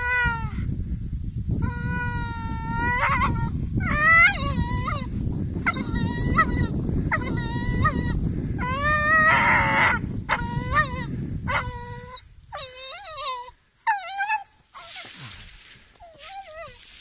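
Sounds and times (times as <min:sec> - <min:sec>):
puppy whining and yelping: 0:01.6 - 0:15.2, 0:16.0 - 0:16.9.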